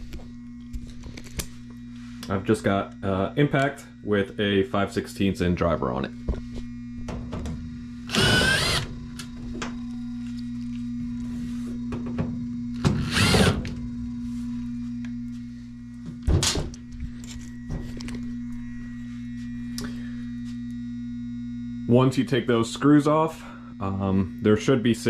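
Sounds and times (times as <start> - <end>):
blower motor humming: 0.0 - 25.0
impact driver removing screws: 8.1 - 8.9, 12.8 - 13.7.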